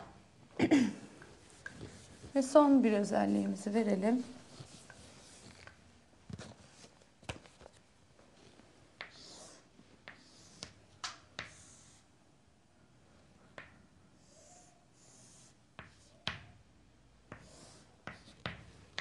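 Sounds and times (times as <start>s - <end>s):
chalk scratching across board: 9.0s - 10.8s, 11.4s - 12.1s, 14.2s - 16.2s, 17.3s - 18.5s
chalk tapping on chalkboard: 9.0s - 12.0s, 15.7s - 16.5s, 17.3s - 19.0s.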